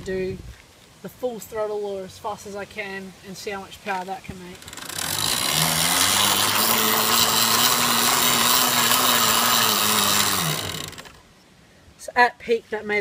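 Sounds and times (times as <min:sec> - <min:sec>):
electric motor and chain whirring: 0:04.5 - 0:11.2.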